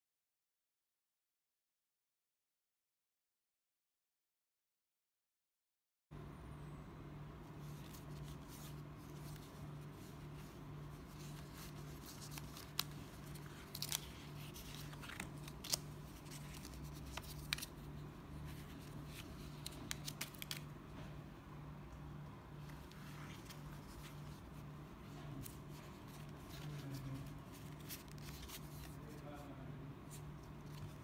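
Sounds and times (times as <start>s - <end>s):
wallet and banknotes handled: 7.5s - 21.1s, 22.6s - 29.4s, 30.0s - 31.0s.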